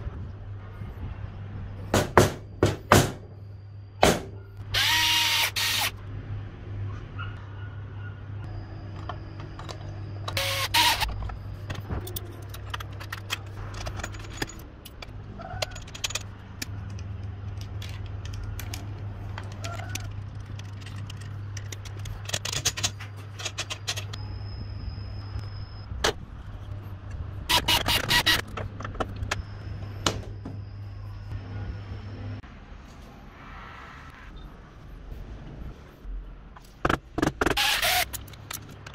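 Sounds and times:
metal parts and tools clinking: 8.8 - 24.2, 36.6 - 38.9.

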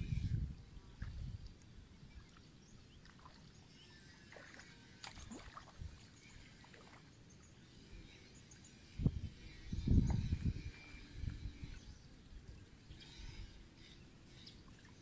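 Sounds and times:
wind rumble on microphone: 0.0 - 2.3, 8.8 - 13.6.

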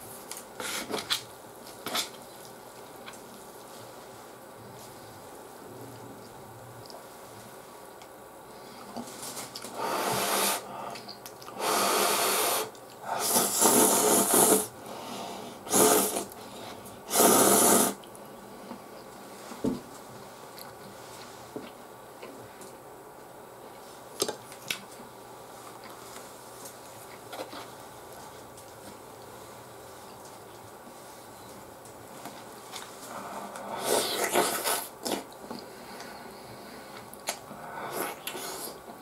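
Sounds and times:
person slurping noodles: 9.8 - 10.7, 11.6 - 14.7, 15.7 - 16.3, 17.1 - 18.0, 33.2 - 35.3, 37.9 - 38.8.

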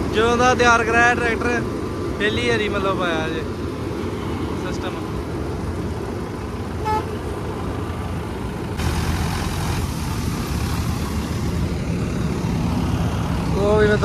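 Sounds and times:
tractor diesel engine running: 0.0 - 14.0
horn toot: 6.8 - 7.2.

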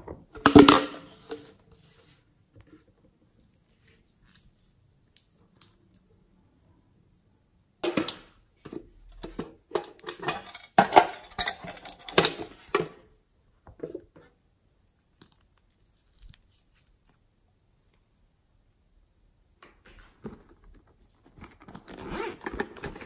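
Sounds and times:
plastic containers clicking and crackling: 9.2 - 13.0.

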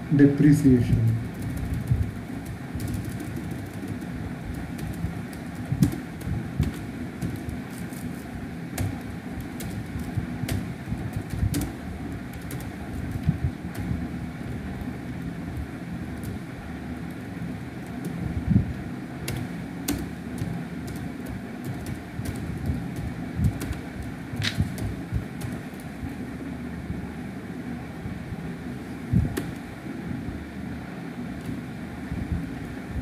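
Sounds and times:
low background rumble: 0.0 - 33.0
keyboard key clicks: 24.4 - 25.6.

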